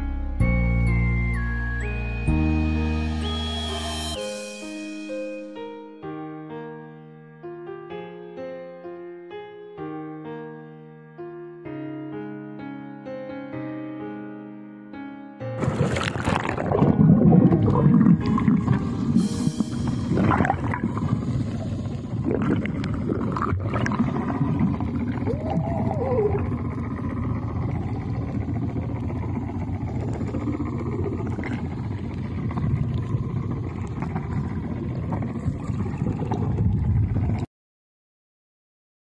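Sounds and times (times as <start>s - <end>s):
rising-and-falling tone: 0.4s - 5.6s, 16.8s - 21.8s
muffled underwater rumble: 15.6s - 37.5s
water gurgles and clicks: 15.6s - 37.5s.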